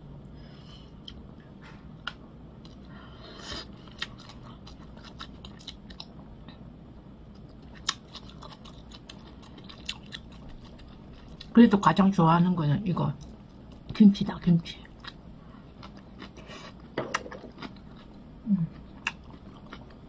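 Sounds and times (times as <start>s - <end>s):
person chewing: 2.0s - 3.0s, 3.6s - 6.6s, 7.3s - 11.5s, 15.0s - 20.0s.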